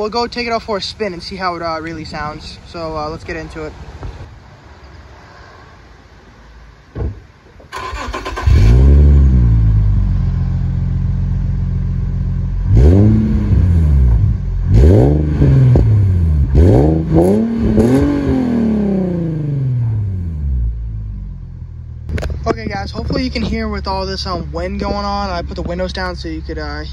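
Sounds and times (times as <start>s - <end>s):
thump: 6.9s - 7.7s
engine starter cranking: 7.7s - 9.0s
car engine idling and revving: 7.8s - 26.9s.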